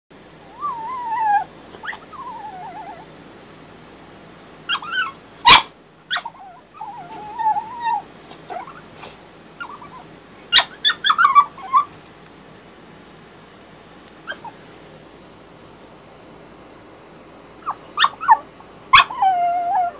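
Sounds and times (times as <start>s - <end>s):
dog whining and howling: 0.4s - 3.1s, 4.7s - 8.9s, 9.6s - 12.0s, 14.3s - 14.6s, 17.6s - 19.9s.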